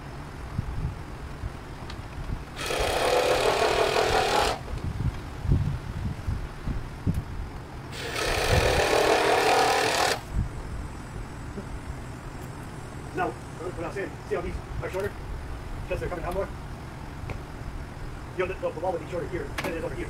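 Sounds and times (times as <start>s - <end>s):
power tool running: 2.6s - 4.6s, 7.9s - 10.3s.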